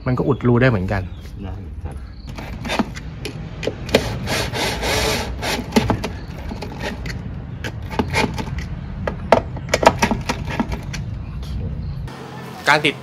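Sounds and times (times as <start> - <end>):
tool rasping scrape: 2.3 - 3.0, 3.9 - 8.7
sharp knocks and clicks: 2.3 - 4.1, 5.5 - 11.1.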